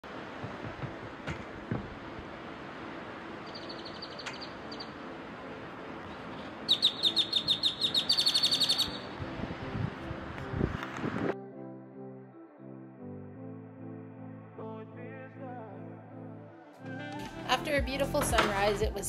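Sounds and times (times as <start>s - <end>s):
gentle surf: 0.0s - 11.3s
bird chirping rapidly: 3.4s - 5.0s, 6.3s - 9.1s.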